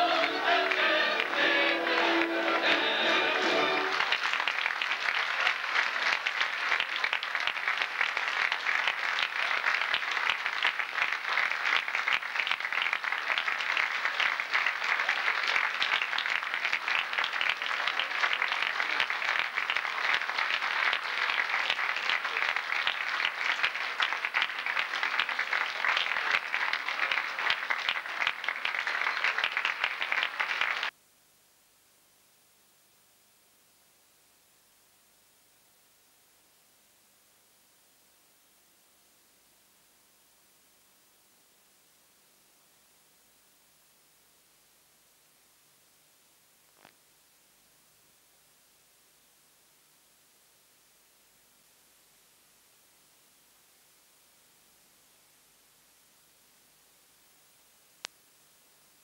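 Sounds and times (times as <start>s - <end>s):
audience applauding: 0.0s - 30.9s.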